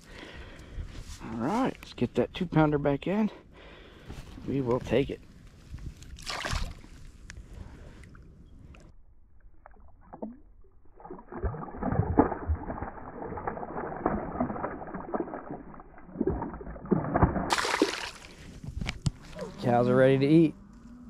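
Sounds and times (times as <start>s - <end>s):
water sloshing and splashing: 6.0s - 7.2s, 9.4s - 18.7s.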